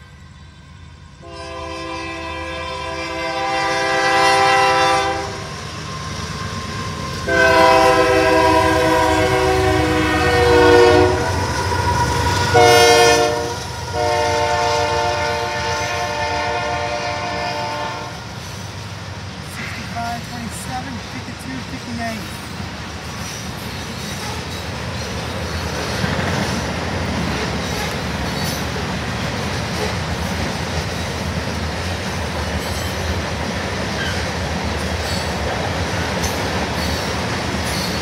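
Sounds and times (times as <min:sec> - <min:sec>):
train rumbling past: 0:00.0 - 0:38.0
locomotive air horn blasts: 0:01.2 - 0:05.5, 0:07.3 - 0:11.4, 0:12.4 - 0:18.2.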